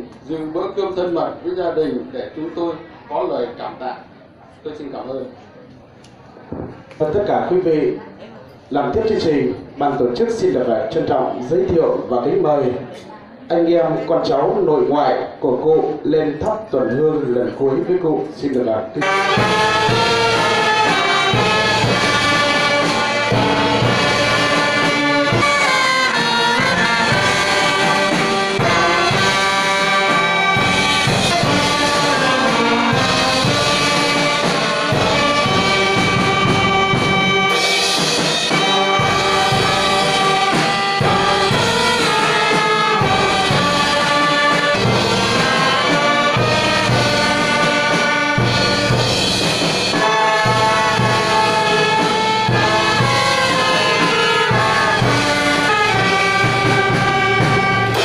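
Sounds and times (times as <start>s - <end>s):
brass band playing: 19.0s - 58.0s.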